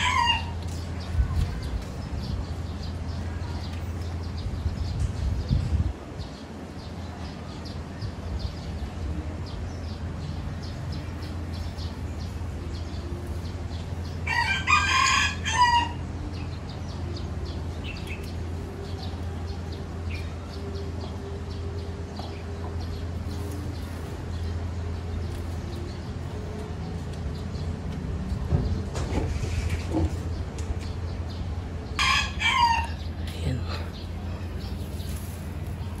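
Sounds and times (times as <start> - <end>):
rooster crowing: 0.0 - 0.6, 14.2 - 16.0, 32.0 - 33.0.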